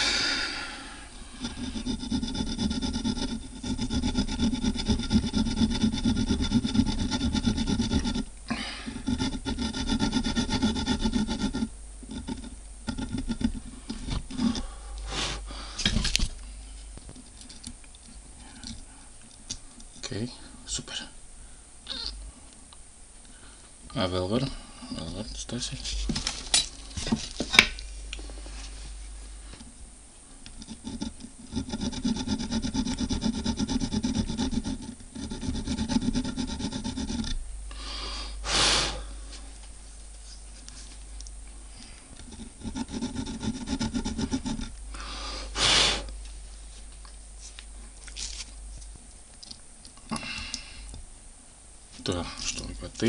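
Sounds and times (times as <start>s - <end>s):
hand file rasping on metal: 1.3s - 8.3s, 8.9s - 14.7s, 30.5s - 37.4s, 42.2s - 44.7s.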